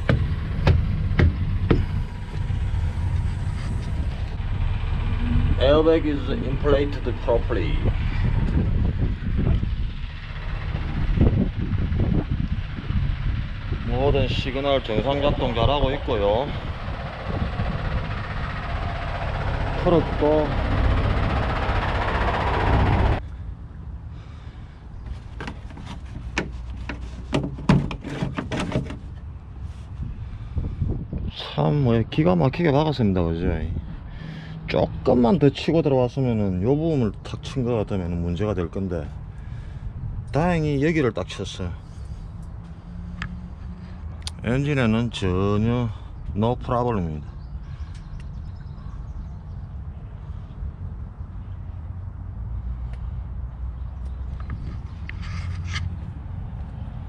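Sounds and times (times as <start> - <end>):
sharp knocks: 0.0 - 2.5
truck idling: 0.0 - 30.7
plastic panel knocking and clattering: 25.4 - 29.1.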